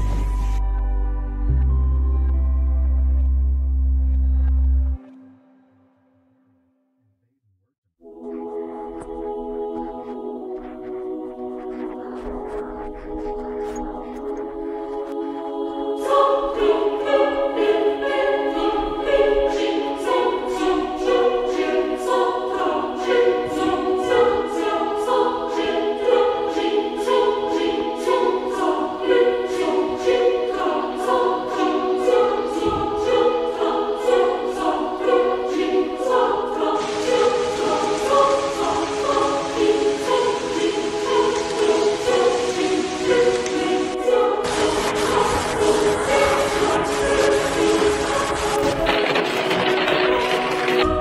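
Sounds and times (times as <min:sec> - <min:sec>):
choir singing sustained chords: 0:00.0 - 0:06.4, 0:08.0 - 0:51.0
rhythmic pulse: 0:08.0 - 0:51.0
high hiss: 0:08.2 - 0:49.1.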